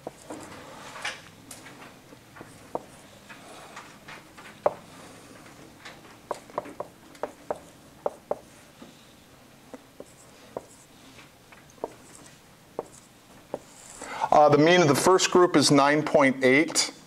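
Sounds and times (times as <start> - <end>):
marker tapping and squeaking on whiteboard: 0.0 - 0.6, 2.3 - 8.9, 9.7 - 10.9, 11.6 - 14.0.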